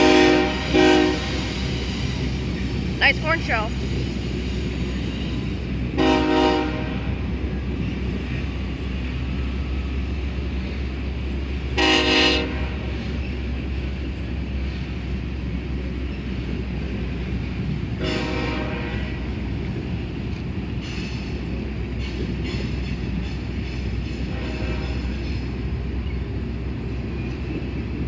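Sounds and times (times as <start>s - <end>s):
locomotive horn blasts: 0.0s - 1.4s, 6.0s - 7.2s, 11.8s - 13.0s, 18.0s - 19.2s, 24.3s - 25.1s
freight train cars rumbling past: 0.0s - 28.0s.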